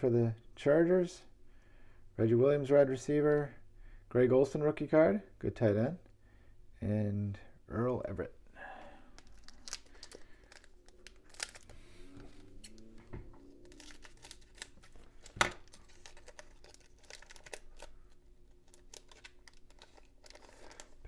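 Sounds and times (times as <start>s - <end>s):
foil wrapper crinkling: 9.1s - 12.8s, 13.5s - 21.0s.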